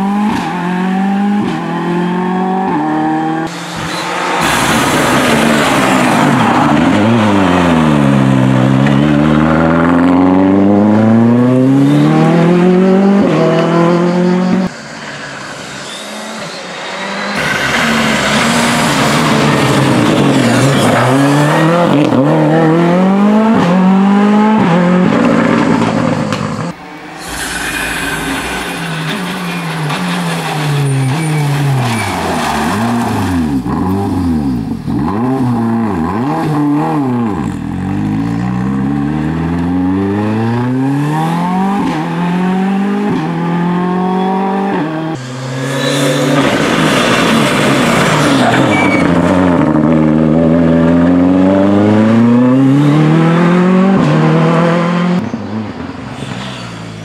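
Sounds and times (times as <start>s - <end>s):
rally car engine revving: 0.0s - 57.0s
tyre squeal: 3.5s - 4.6s, 13.7s - 18.0s, 18.9s - 22.0s, 27.2s - 32.6s, 45.5s - 46.6s, 48.1s - 49.4s, 55.3s - 57.0s.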